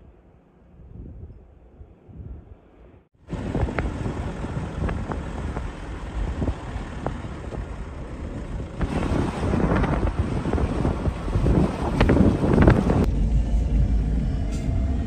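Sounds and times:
vehicle engine and road rumble: 0:00.0 - 0:15.0
wind on microphone: 0:00.8 - 0:02.6, 0:03.3 - 0:07.7, 0:08.4 - 0:13.1.

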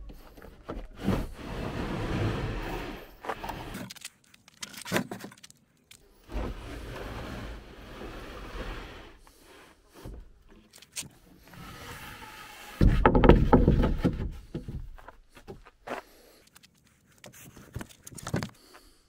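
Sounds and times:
wooden drawer knocking and scraping: 0:12.8 - 0:14.7.

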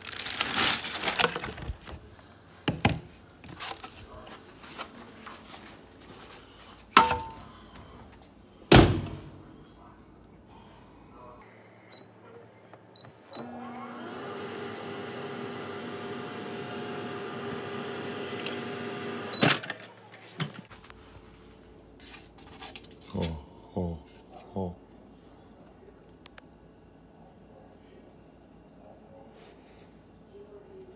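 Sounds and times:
microwave door shutting: 0:08.7 - 0:09.4
microwave oven humming: 0:10.6 - 0:19.8.

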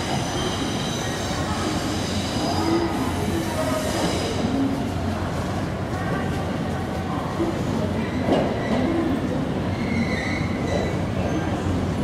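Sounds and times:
train wheels squealing: 0:00.0 - 0:04.6, 0:09.6 - 0:11.6
train low rumble: 0:00.0 - 0:12.0.

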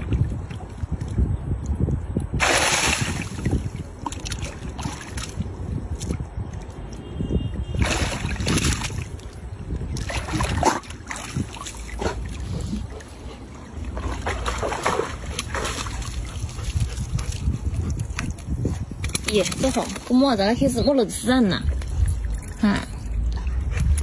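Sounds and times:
wind rumbling on microphone: 0:00.0 - 0:24.0.

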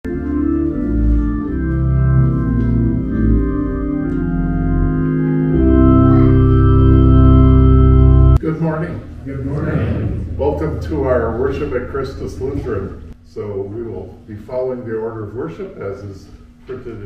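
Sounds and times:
church organ chords: 0:00.1 - 0:08.4, 0:10.2 - 0:13.2.

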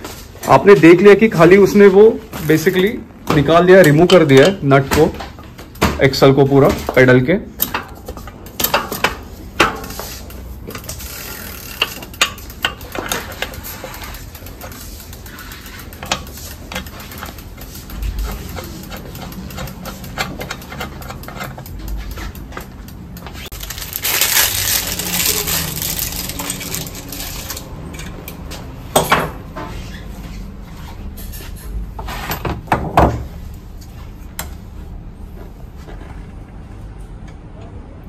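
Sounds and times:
pedal wrench clicking and scraping: 0:07.6 - 0:28.6
plastic packaging rustling: 0:22.4 - 0:27.8.

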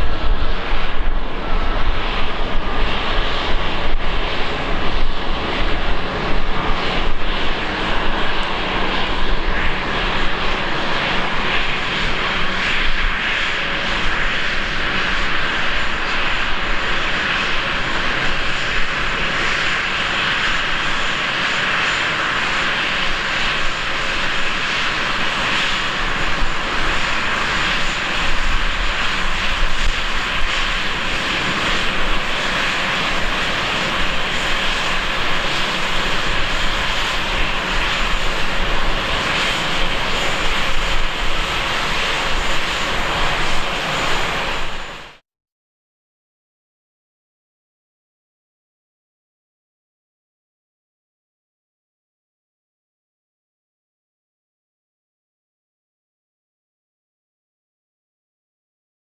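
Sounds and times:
jet engines hissing with whistle: 0:00.0 - 0:45.2.

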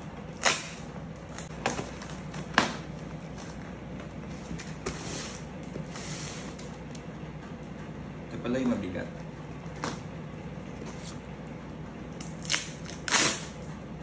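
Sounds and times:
scissors snipping tape: 0:12.2 - 0:13.6.

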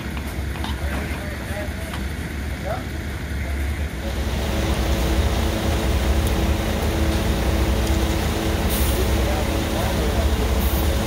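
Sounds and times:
concrete pump truck drone: 0:00.0 - 0:11.0.

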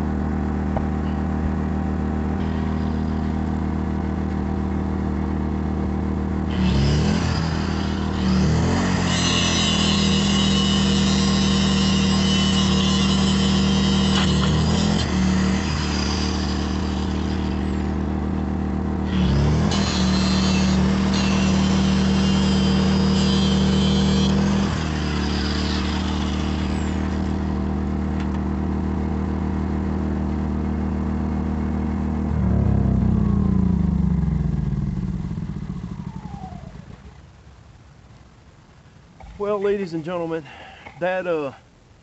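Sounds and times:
angle grinder cutting steel: 0:06.5 - 0:18.2, 0:19.0 - 0:27.7
angle grinder winding down: 0:19.1 - 0:27.6.

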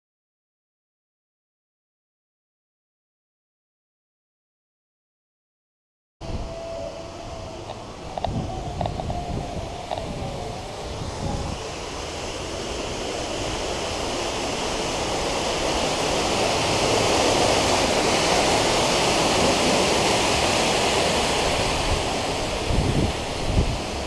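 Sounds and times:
steady rushing noise: 0:06.2 - 0:24.0.

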